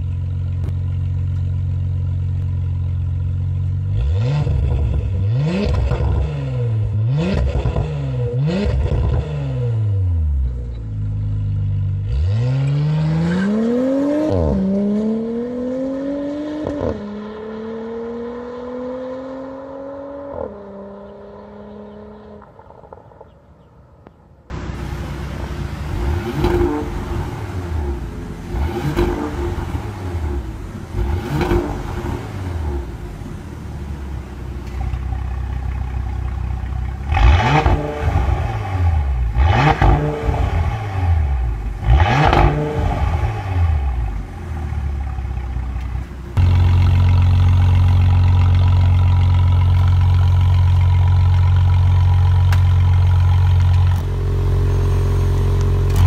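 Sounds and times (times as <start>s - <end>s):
car engine idling drone: 0.0s - 8.4s, 22.8s - 56.0s
car engine revving in blips: 3.9s - 10.8s, 24.5s - 56.0s.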